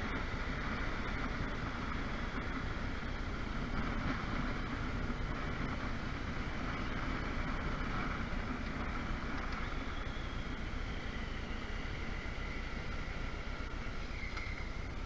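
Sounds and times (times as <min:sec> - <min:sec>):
road noise: 0:00.0 - 0:15.0.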